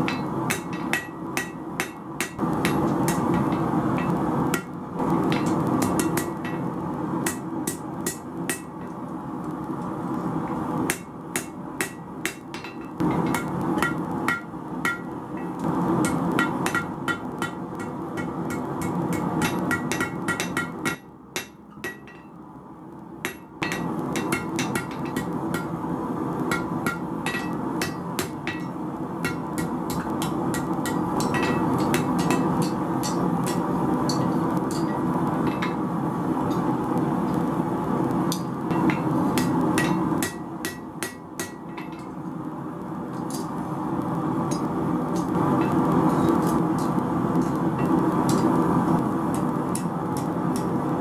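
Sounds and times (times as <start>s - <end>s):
gas forge rushing hum: 0.0s - 51.0s
hammer ringing on anvil: 26.5s - 35.8s.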